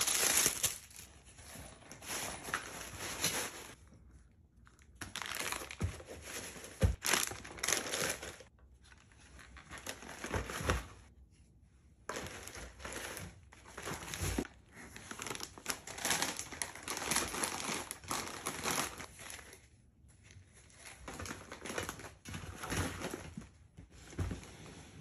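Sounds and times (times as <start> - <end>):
plastic packaging crinkling: 0.0 - 1.2, 4.8 - 8.5, 15.0 - 19.5.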